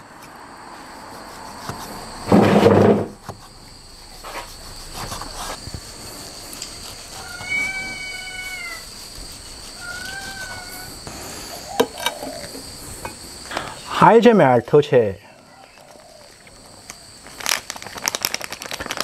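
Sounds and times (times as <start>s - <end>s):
insects trilling: 0.0s - 19.0s
cat meowing: 7.1s - 8.9s, 9.8s - 11.0s.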